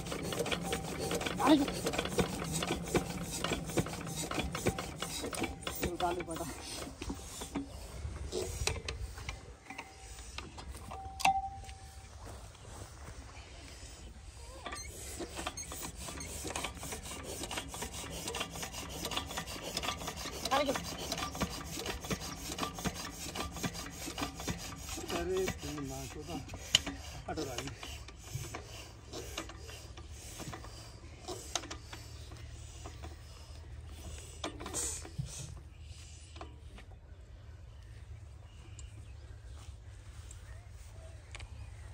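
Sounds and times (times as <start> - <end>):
diesel engine being hand-cranked: 0.0 - 40.9.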